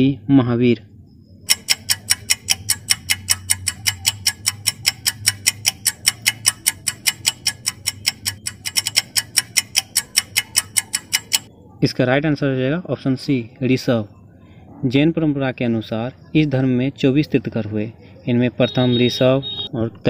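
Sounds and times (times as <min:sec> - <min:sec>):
clock ticking: 0:01.5 - 0:11.5.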